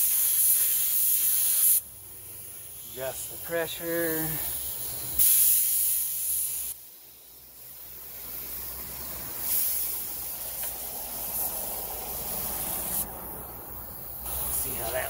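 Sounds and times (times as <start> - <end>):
spray gun air hissing: 0.0 - 15.0.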